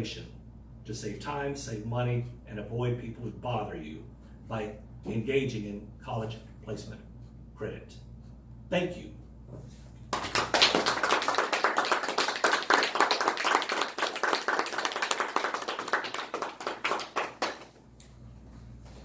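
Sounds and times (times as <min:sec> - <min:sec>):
people applauding: 0:10.1 - 0:17.8.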